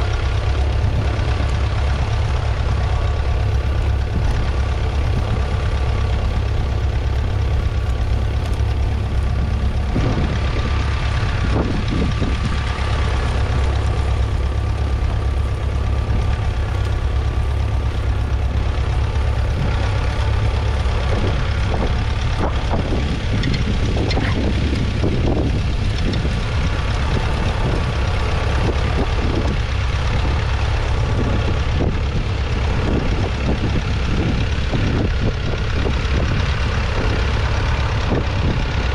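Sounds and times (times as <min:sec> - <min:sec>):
tractor diesel engine under load: 0:00.0 - 0:38.9.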